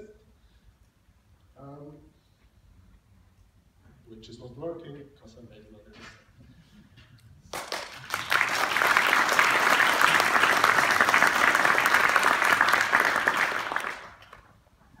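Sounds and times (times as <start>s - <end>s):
audience applauding: 7.5s - 14.6s.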